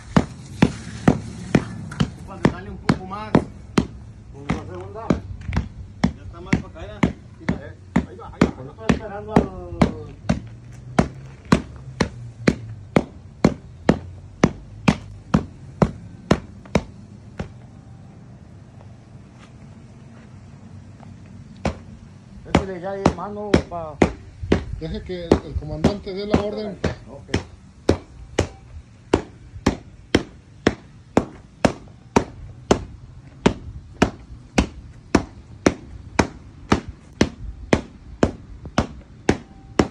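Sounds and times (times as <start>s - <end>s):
sharp evenly spaced knocks: 0.0s - 17.6s, 21.6s - 39.9s
tamper knocking on concrete mats: 0.1s - 17.6s.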